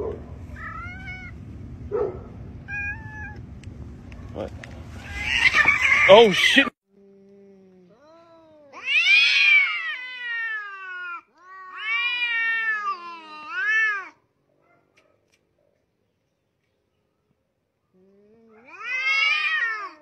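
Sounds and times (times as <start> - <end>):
cat growling: 0.0 - 1.4, 2.0 - 3.4, 4.2 - 6.6, 18.0 - 20.0
cats yowling: 0.0 - 1.4, 2.0 - 3.4, 4.1 - 6.7, 8.0 - 14.2, 18.4 - 20.0.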